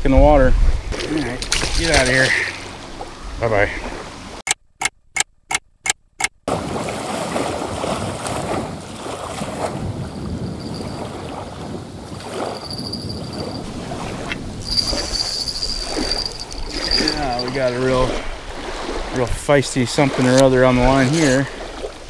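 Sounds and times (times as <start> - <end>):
waves lapping against shore: 0.9 - 4.4, 6.5 - 22.0
sharp clicks: 4.4 - 6.4
fishing reel drag zing: 14.6 - 17.8.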